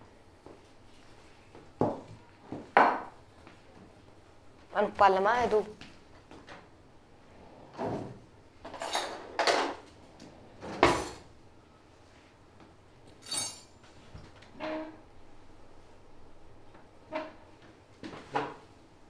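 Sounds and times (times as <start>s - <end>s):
kitchen clatters and knocks: 1.8s - 3.2s, 7.8s - 9.9s, 10.6s - 11.3s.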